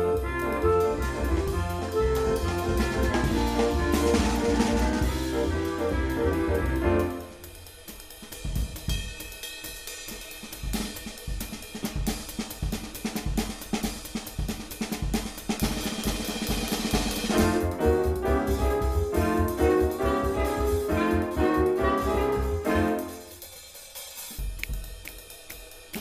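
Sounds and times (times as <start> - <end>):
jazz band playing: 0.0 - 7.8, 15.7 - 23.8
drum kit break: 0.0 - 26.0.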